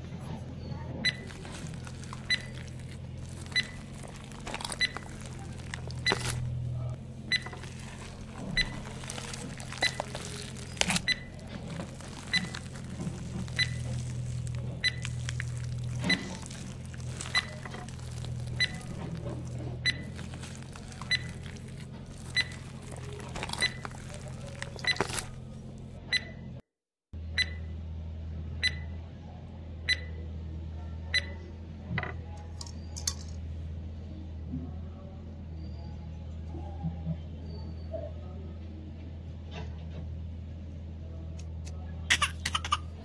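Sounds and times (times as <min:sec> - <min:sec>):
low steady hum: 0:00.6 - 0:26.0
short high heart-monitor beeps: 0:02.2 - 0:02.6, 0:03.5 - 0:03.8.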